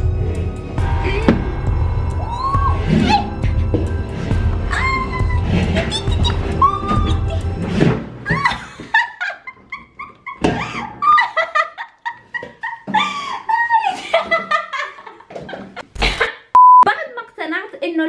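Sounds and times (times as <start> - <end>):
high whining whimpers and yelps: 4.7 - 7.5.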